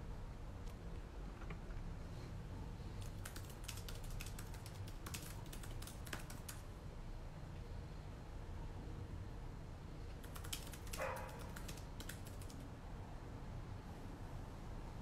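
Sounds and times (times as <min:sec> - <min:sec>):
low background hum: 0:00.0 - 0:15.0
keyboard typing: 0:03.0 - 0:06.6, 0:10.2 - 0:12.7.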